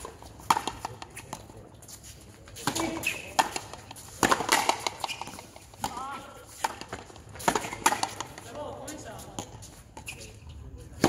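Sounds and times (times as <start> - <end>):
racket striking rubber ball: 0.0 - 1.5, 2.6 - 8.6
shoes squeaking on concrete: 0.0 - 11.0
ball slapping off concrete wall: 2.6 - 8.4.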